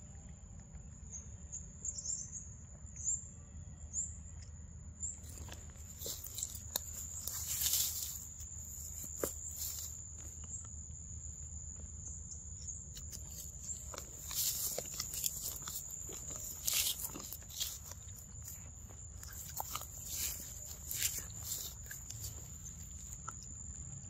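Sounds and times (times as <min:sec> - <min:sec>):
insects droning: 0:00.0 - 0:24.0
rustles in undergrowth: 0:05.2 - 0:10.5, 0:12.9 - 0:23.4.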